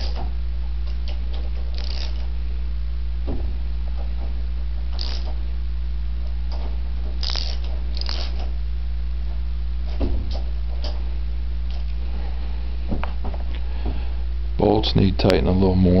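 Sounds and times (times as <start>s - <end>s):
steady low hum: 0.0s - 16.0s
wrench metal clicks: 0.9s - 2.3s, 4.9s - 5.4s, 7.2s - 8.5s
dull knocks: 3.2s - 4.4s, 9.9s - 10.8s.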